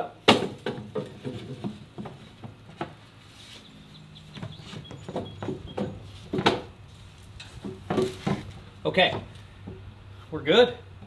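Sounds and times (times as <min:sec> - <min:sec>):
wooden panel knocking on metal frame: 0:00.3 - 0:03.0, 0:04.4 - 0:06.7, 0:07.6 - 0:09.8.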